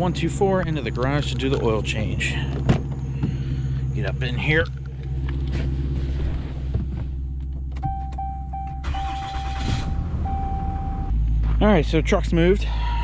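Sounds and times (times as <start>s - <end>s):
pickup engine running: 0.0s - 13.0s
dashboard warning chime: 7.8s - 9.6s, 10.2s - 11.1s.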